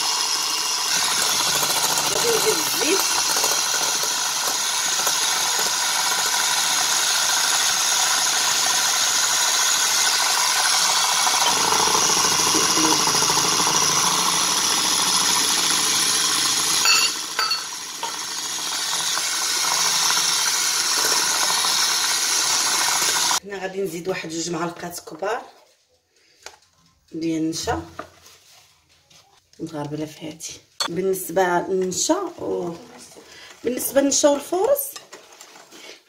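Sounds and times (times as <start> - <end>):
electric hand mixer whisking: 0.0 - 23.4
mixer clicks: 0.8 - 9.2.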